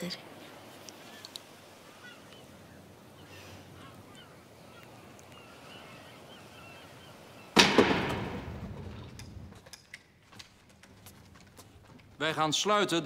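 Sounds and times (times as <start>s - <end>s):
faint bird calls: 0.2s - 7.6s
loud bang: 7.6s - 8.8s.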